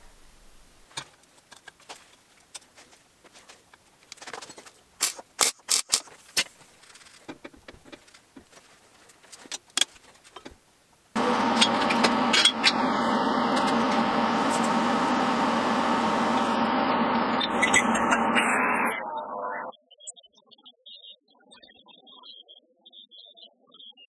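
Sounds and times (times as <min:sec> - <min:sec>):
welder sputtering and popping: 0:05.0 - 0:08.2, 0:11.2 - 0:19.1
loud steady machine noise: 0:11.2 - 0:19.1.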